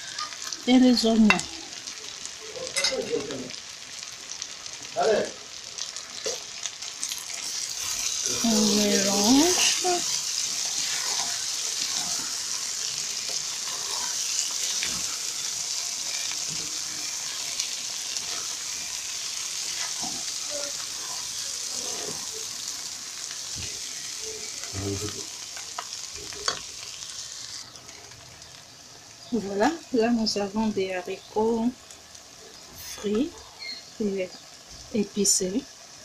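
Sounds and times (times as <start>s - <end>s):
food sizzling in oil: 0.0s - 36.0s
wooden spoon scraping a pot: 9.0s - 12.6s, 13.2s - 15.4s.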